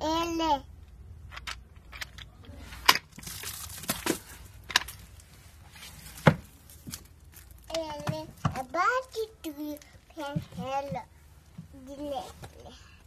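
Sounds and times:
books knocking: 6.1 - 6.5.

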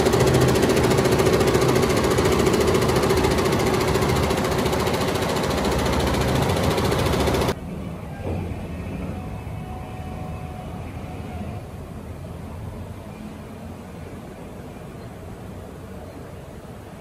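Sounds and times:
embroidery machine rattling: 0.0 - 7.6.

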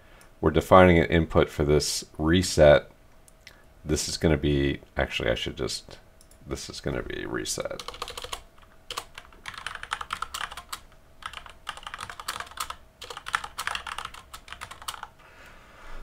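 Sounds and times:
typing on computer keyboard: 7.7 - 15.1.

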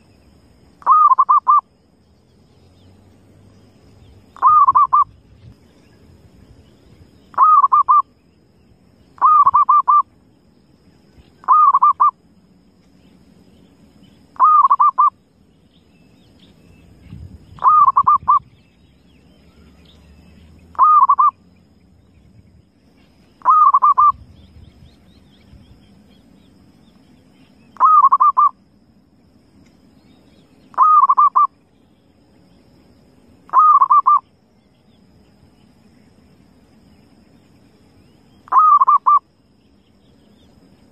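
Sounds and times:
dove cooing: 0.8 - 1.6, 4.4 - 5.1, 7.4 - 8.0, 9.2 - 10.0, 11.4 - 12.1, 14.4 - 15.1, 17.6 - 18.5, 20.7 - 21.4, 23.4 - 24.2, 27.8 - 28.5, 30.7 - 31.5, 33.5 - 34.2, 38.5 - 39.2.

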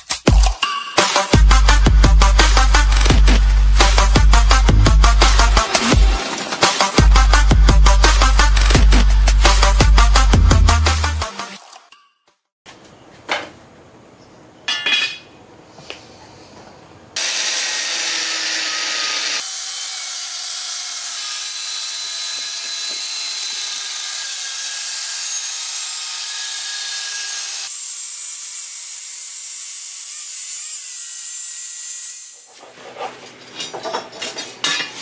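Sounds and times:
angle grinder cutting steel: 17.2 - 32.5.

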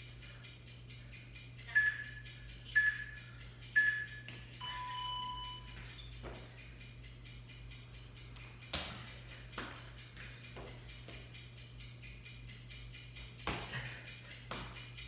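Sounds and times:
workout timer ticking: 0.0 - 15.0
longer lower beep: 1.7 - 5.8
short high beeps: 2.8 - 5.8.

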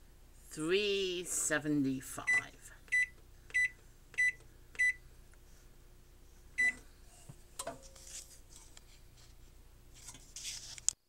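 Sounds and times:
oven control panel beeps: 2.3 - 5.0, 6.6 - 6.8.

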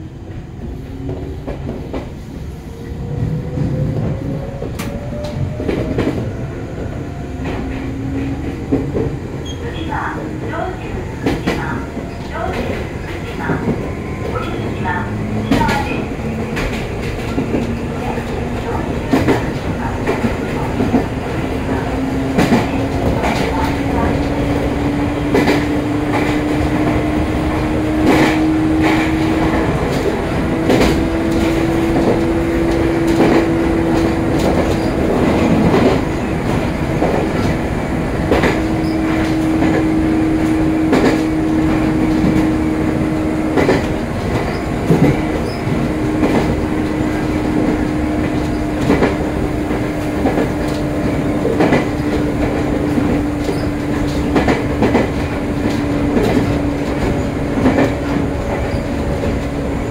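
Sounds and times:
train motor hum: 0.0 - 59.9
wheels clacking over rail joints: 43.5 - 59.9.

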